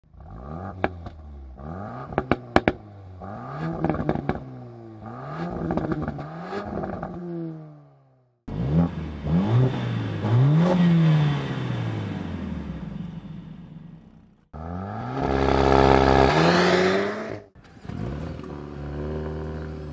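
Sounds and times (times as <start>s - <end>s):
car engine revving: 0.1s - 7.8s, 8.5s - 19.9s
exhaust pops and crackles: 2.1s - 2.8s, 3.8s - 4.5s, 5.6s - 7.2s.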